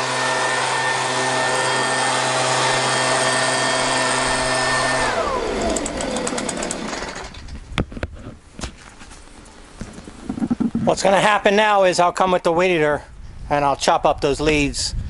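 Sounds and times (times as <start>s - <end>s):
leaf blower whining: 0.0s - 7.5s.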